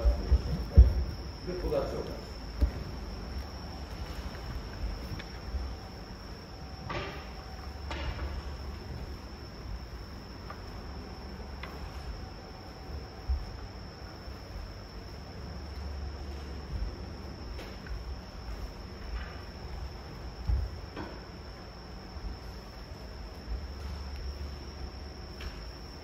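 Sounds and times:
soft knocks: 0:00.0 - 0:01.2
crickets trilling: 0:00.0 - 0:26.0.

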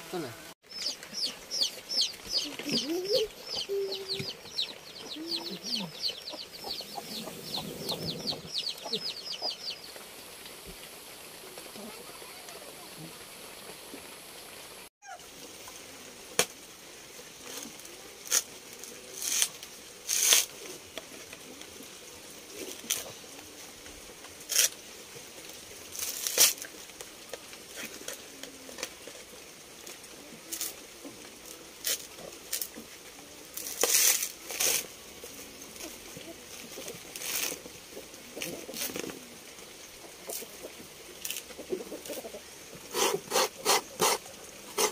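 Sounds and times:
husk fibres tearing: 0:19.2 - 0:20.5, 0:24.5 - 0:24.8, 0:25.9 - 0:26.7, 0:33.6 - 0:34.9.

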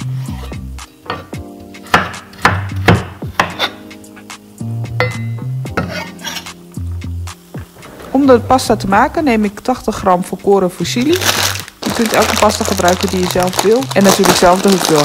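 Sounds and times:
background music: 0:00.0 - 0:15.0
knife chopping on wooden board: 0:01.9 - 0:03.8.

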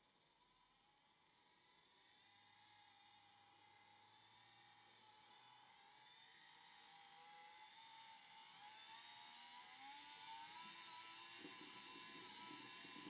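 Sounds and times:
small electric motor whirring: 0:09.1 - 0:13.0.

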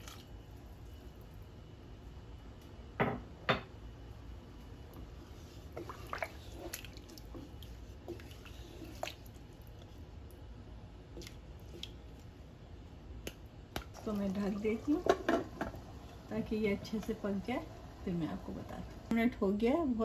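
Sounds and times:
spatula stirring liquid in a pot: 0:04.7 - 0:10.3.

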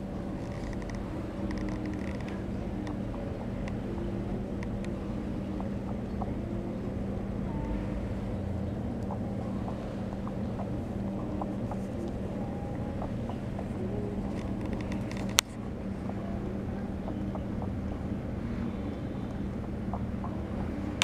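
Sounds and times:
faint clicks: 0:00.0 - 0:08.3, 0:09.0 - 0:16.2
low hum and rumble: 0:00.0 - 0:21.0.

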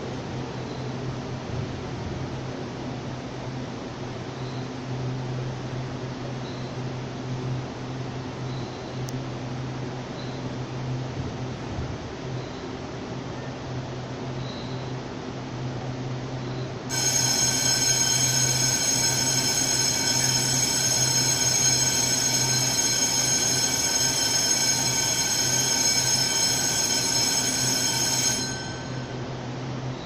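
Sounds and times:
high-pitched buzzer tone: 0:16.9 - 0:29.2.

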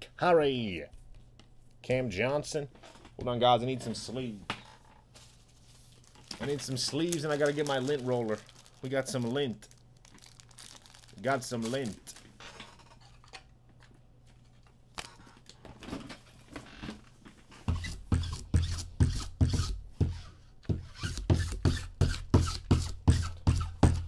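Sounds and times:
handling sounds: 0:05.1 - 0:16.3.

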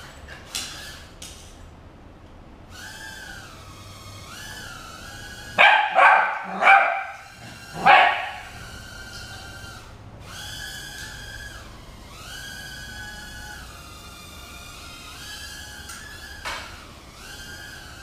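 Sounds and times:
drone motors whining: 0:02.6 - 0:18.0
puppy barking: 0:05.6 - 0:08.6.

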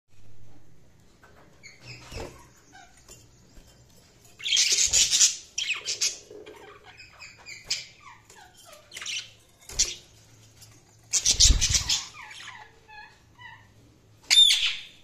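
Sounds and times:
budgerigars chirping: 0:04.4 - 0:10.0, 0:11.1 - 0:15.0
scratchy bird calls: 0:04.4 - 0:13.7.

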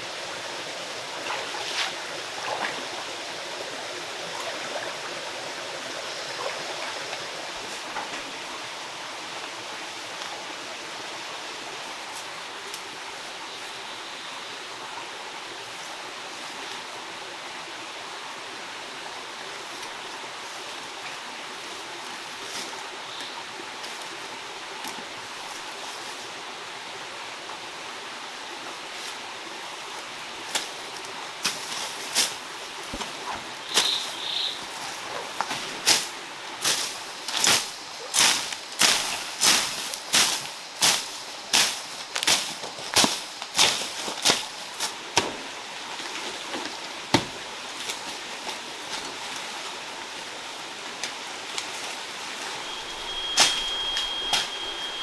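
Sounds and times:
stream rushing: 0:00.0 - 0:55.0.

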